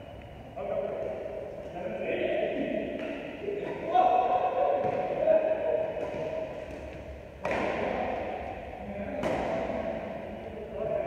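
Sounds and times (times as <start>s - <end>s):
racket hitting shuttlecock: 2.9s - 3.3s, 6.0s - 8.4s, 9.2s - 9.9s.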